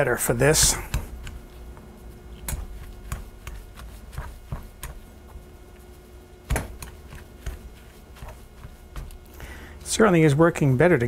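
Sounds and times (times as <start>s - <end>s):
pastry cutter chopping food: 0.5s - 1.5s, 2.4s - 5.1s, 6.5s - 9.2s.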